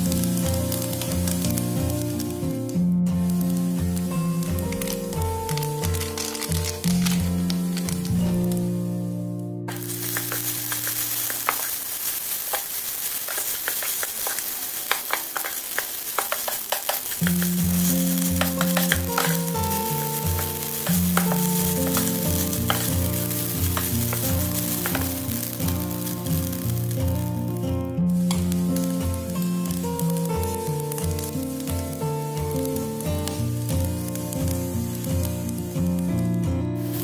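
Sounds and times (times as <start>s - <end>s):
rice sizzling in a pot: 0.0s - 37.0s
spatula clicking against pan: 13.3s - 19.5s.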